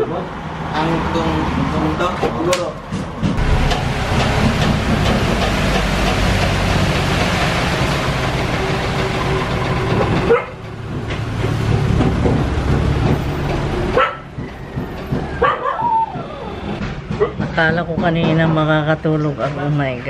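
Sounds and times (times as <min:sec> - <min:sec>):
diesel engine running: 0:02.8 - 0:18.0.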